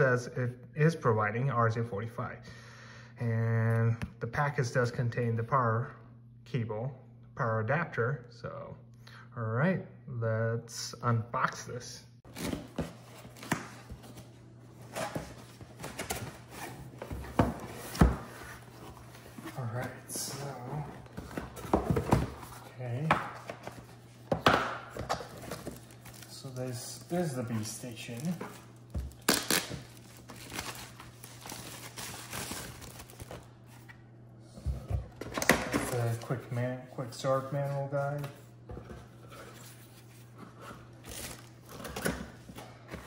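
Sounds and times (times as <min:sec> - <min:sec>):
plastic wrap rustling and crinkling: 0:25.3 - 0:33.8, 0:39.4 - 0:42.4.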